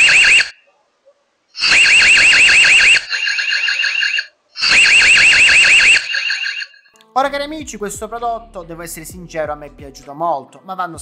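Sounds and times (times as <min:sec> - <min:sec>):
electronic alarm warbling: 0:00.0 - 0:00.6, 0:01.6 - 0:06.9.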